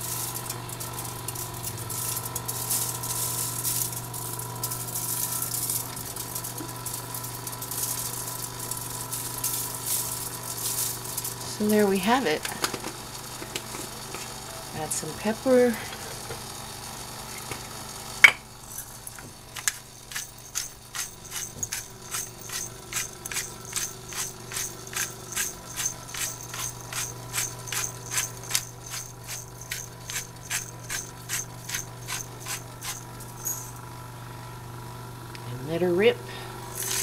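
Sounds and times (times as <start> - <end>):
pepper grinder ratcheting: 0.0 - 11.8, 18.7 - 33.8, 36.7 - 37.0.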